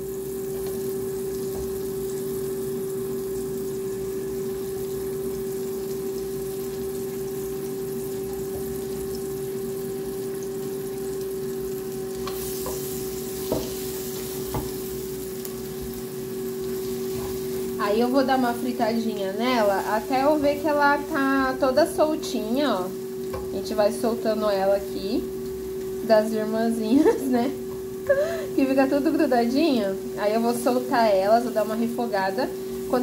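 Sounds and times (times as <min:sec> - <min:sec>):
onions sizzling in oil: 0:00.0 - 0:33.0
steady hum: 0:00.0 - 0:33.0
spatula knocking on pan: 0:13.4 - 0:13.8, 0:14.4 - 0:14.8.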